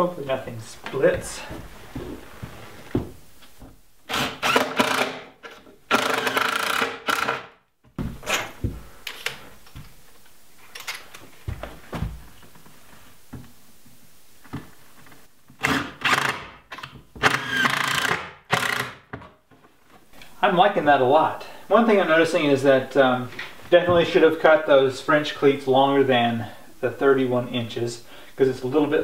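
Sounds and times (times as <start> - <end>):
clicks and handling noise: 8.3 - 11.4.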